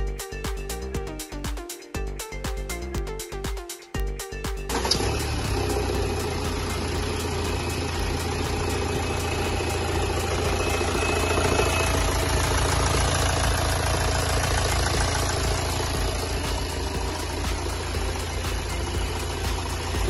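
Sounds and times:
diesel engine idling: 4.7 - 20.0.

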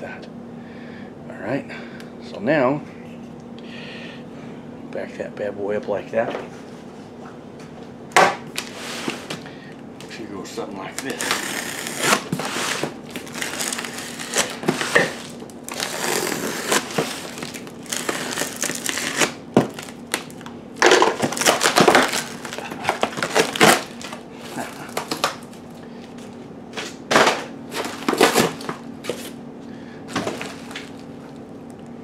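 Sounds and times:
plastic wrap and tape crinkling: 10.8 - 29.4, 30.1 - 31.5.

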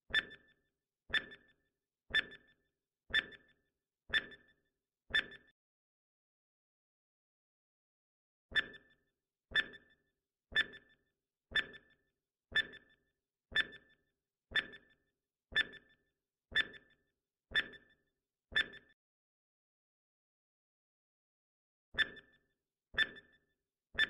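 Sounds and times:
timer ticking with high ring: 1.1 - 1.5, 4.1 - 4.5, 14.6 - 15.0.

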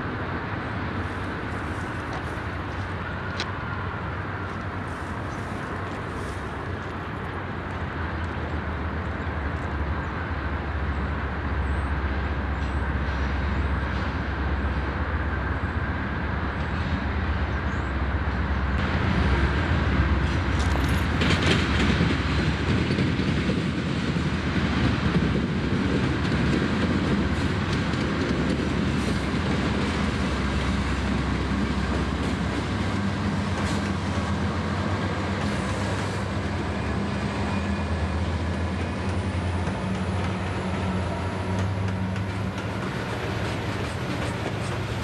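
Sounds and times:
diesel locomotive engine rumble: 0.0 - 45.0.

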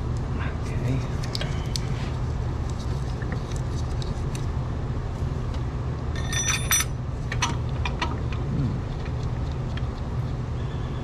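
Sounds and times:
steady low rumble: 0.0 - 10.3
ringing metal clinks: 6.2 - 7.0.

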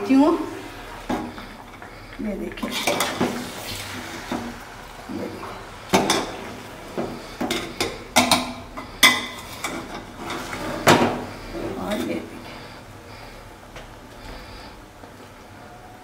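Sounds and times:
metal spoon scraping pot: 7.1 - 12.3.

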